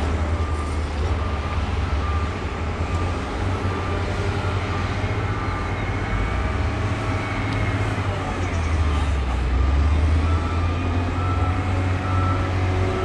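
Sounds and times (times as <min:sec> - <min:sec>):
diesel engines rumbling: 0:00.0 - 0:13.0.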